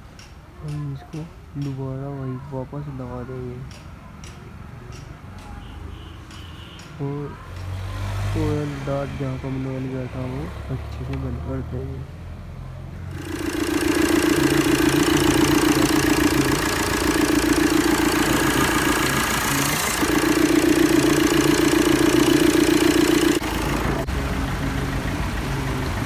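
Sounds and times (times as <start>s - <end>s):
diesel engine idling: 13.1s - 26.0s.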